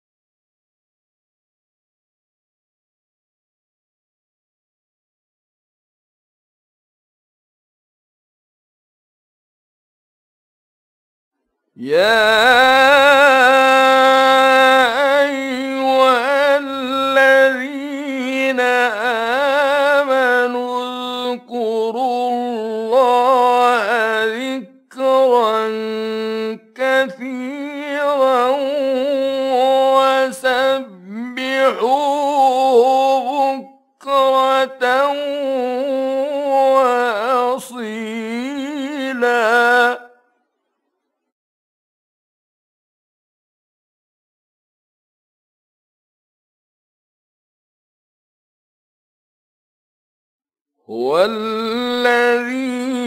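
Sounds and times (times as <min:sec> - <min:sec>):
man chanting melodic recitation: 0:11.8 - 0:40.1, 0:50.9 - 0:53.0.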